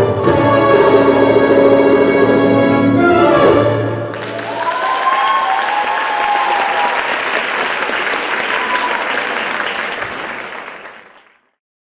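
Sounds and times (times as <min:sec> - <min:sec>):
audience applauding: 0:04.1 - 0:11.6.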